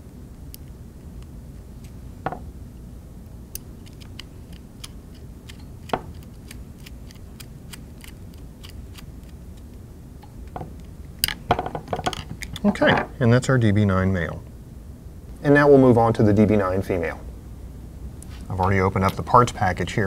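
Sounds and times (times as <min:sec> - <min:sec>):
screwdriver metallic ticks: 0:03.5 - 0:09.0.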